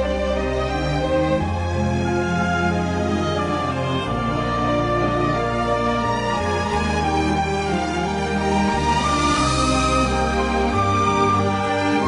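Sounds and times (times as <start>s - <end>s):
slow instrumental music: 0.0s - 12.0s.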